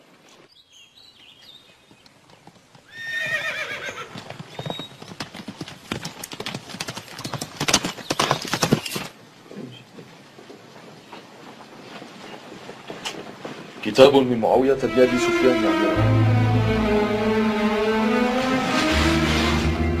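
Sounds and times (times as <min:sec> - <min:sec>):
horse whinnying: 0:02.9 - 0:04.2
hoofbeats clattering: 0:09.8 - 0:17.0.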